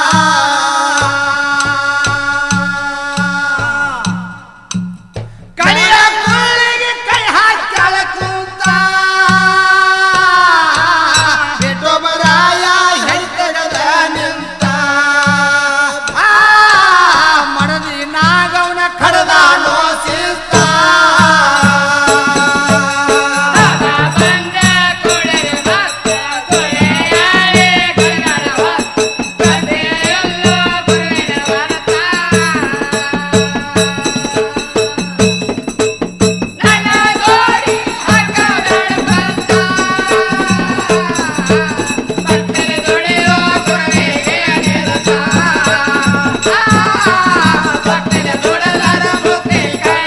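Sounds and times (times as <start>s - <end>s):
steady drum beat: 0.0s - 50.0s
shaken rattle percussion: 20.0s - 50.0s.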